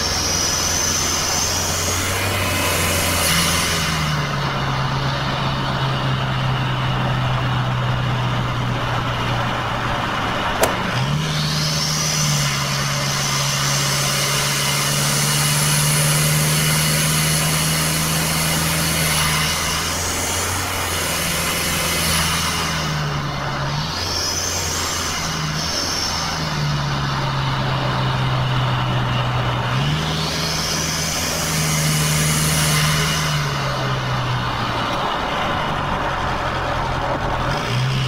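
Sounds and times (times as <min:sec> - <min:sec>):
engine drone: 0:00.0 - 0:38.0
road noise: 0:00.0 - 0:38.0
sharp click: 0:10.6 - 0:11.0.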